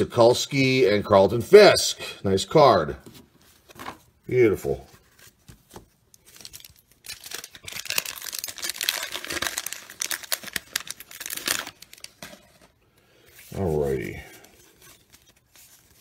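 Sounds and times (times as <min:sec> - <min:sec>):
card pack wrapper tearing: 0:06.1 - 0:12.7.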